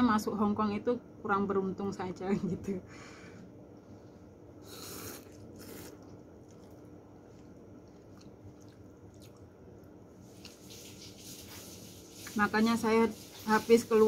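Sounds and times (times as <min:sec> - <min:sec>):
faint chewing with clicks: 0:03.4 - 0:10.8
person slurping noodles: 0:04.0 - 0:06.7.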